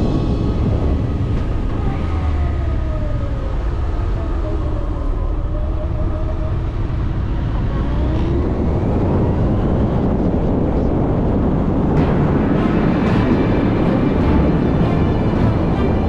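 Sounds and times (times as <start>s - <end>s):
wind noise on microphone: 0.0s - 16.0s.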